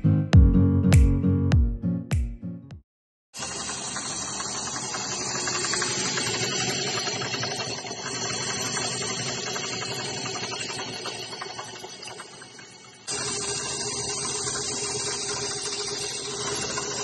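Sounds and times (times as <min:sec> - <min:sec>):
intro music: 0:00.0 - 0:02.8
line-spooling machine whirring: 0:03.4 - 0:17.0.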